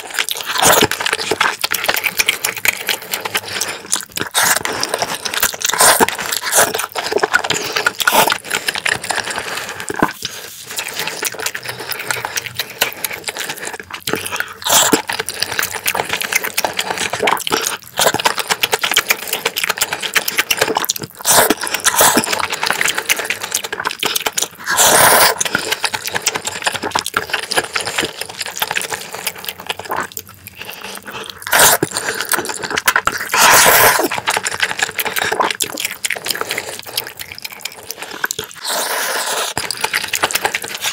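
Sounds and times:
wet chewing: 0.0 - 40.9.

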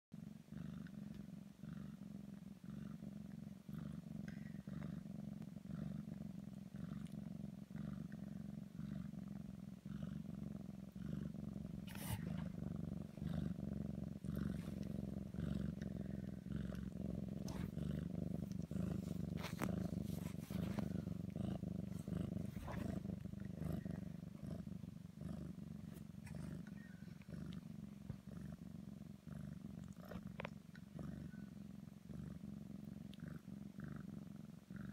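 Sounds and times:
cat purring: 0.1 - 34.9.

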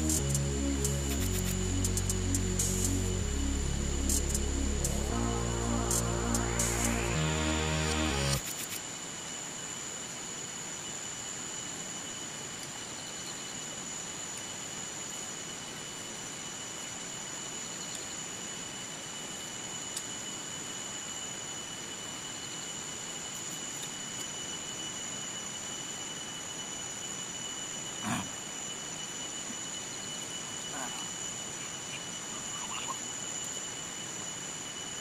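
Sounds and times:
background music: 0.0 - 8.4
constant hiss: 0.0 - 35.0
insects droning: 0.0 - 35.0.

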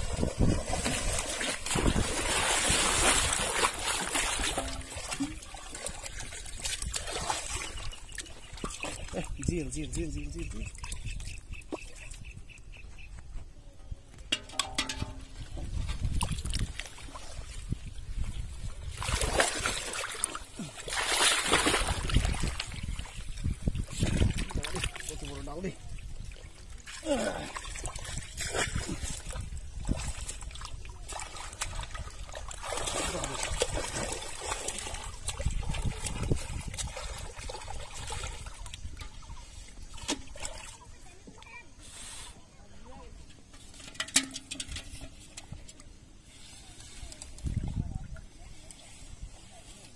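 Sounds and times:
water sloshing: 0.0 - 12.3, 14.2 - 41.7
fish clattering into metal bowl: 14.3 - 15.5, 43.7 - 45.6.

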